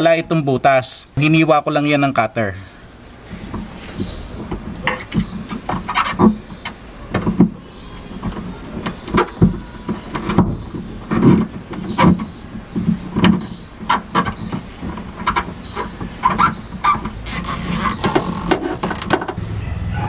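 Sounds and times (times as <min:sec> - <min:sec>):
wire connector scraping through rubber: 0:17.1 - 0:19.1.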